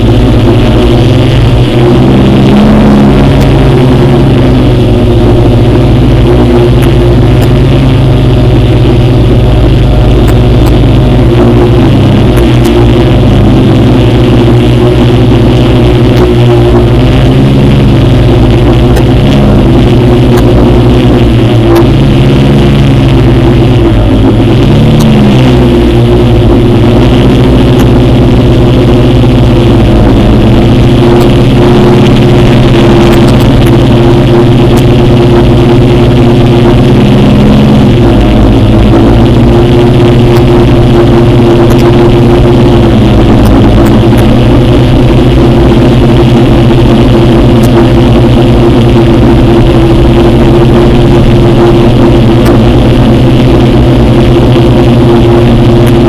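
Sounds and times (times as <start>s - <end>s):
drone propellers buzzing: 0.0s - 56.0s.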